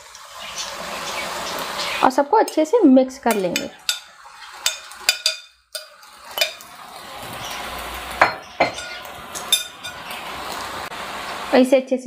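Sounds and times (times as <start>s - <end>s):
pan sizzling: 0.0s - 12.0s
metal spoon clinking on glass bowl: 3.3s - 6.6s, 8.2s - 10.0s
spoon clinking against pan: 3.3s - 6.7s, 8.2s - 10.2s.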